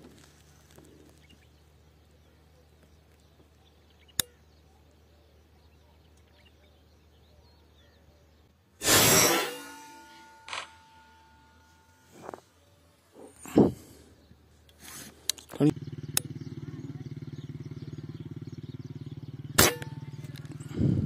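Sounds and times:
airgun firing: 8.8s - 10.9s, 19.6s - 20.0s
sharp click: 10.4s - 10.9s.

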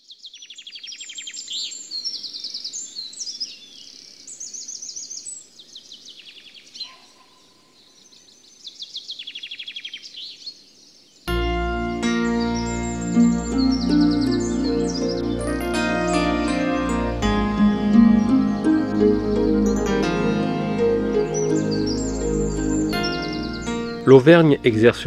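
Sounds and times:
songbirds singing: 0.0s - 25.0s
music: 11.3s - 25.0s.

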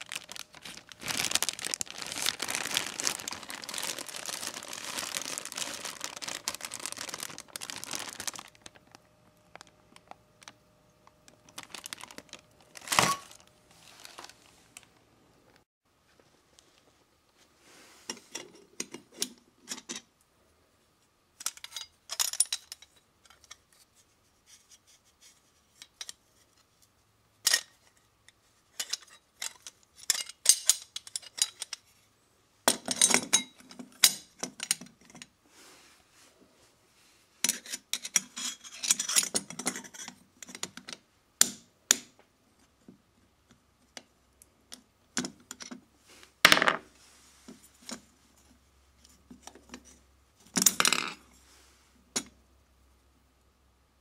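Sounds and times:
metal parts clinking and rattling: 21.4s - 23.6s, 28.8s - 31.9s.

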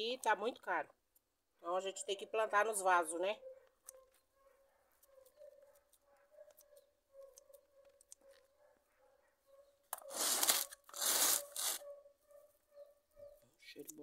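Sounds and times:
loud rustling tearing noises: 10.0s - 11.8s.

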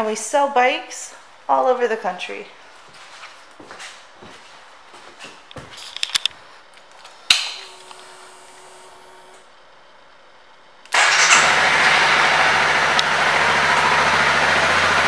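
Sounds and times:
handling clicks: 5.8s - 8.0s
fuel pump humming: 6.9s - 9.5s, 10.9s - 15.0s
motorcycle engine starting and running: 10.9s - 15.0s.

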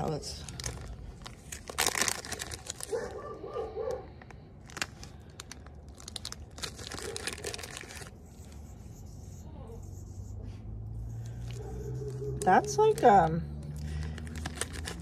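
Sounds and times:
plastic packaging crinkling: 0.0s - 8.3s, 13.8s - 15.0s.

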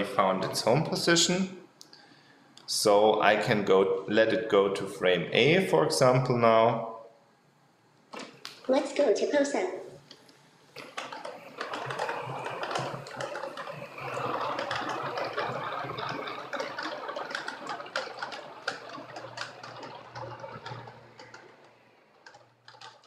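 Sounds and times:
robot motors and wheels rattling: 10.8s - 23.0s.

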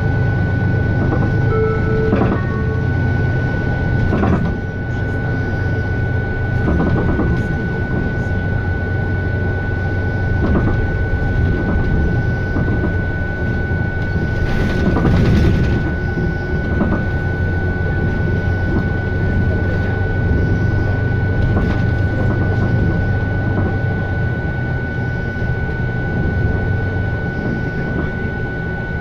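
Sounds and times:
constant high whine: 0.0s - 29.0s
diesel engine low hum: 0.0s - 29.0s
bus body knocks and rattles: 6.6s - 7.5s, 10.3s - 13.0s, 14.3s - 16.0s.

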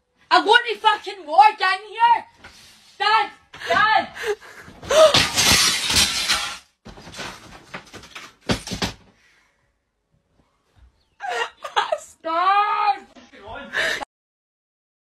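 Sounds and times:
loud crash of something shattering: 4.8s - 7.4s.

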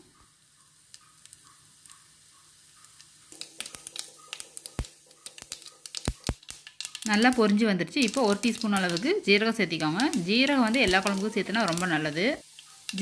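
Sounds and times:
oil sizzling: 0.0s - 13.0s
mustard seeds popping: 2.8s - 13.0s.

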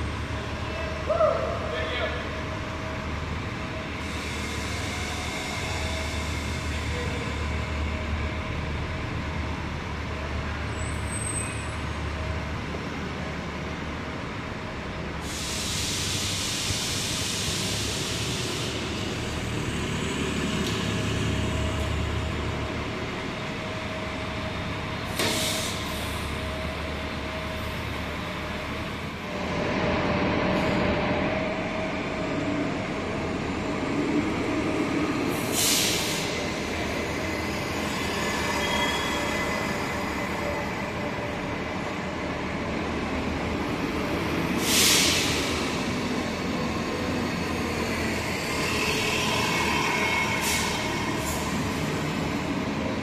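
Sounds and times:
bus engine rumble: 0.0s - 53.0s
air brake hiss: 15.2s - 18.8s, 25.1s - 26.3s, 35.3s - 36.4s, 44.6s - 45.7s, 50.2s - 51.5s.

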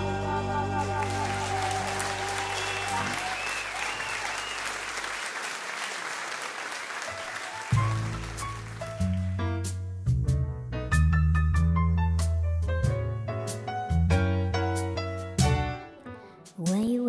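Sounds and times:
audience applauding: 0.8s - 9.4s.

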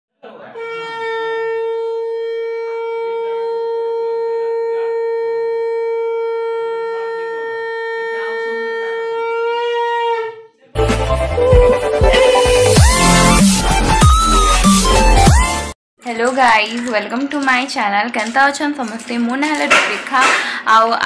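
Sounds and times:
conch shell blast: 0.6s - 10.4s.

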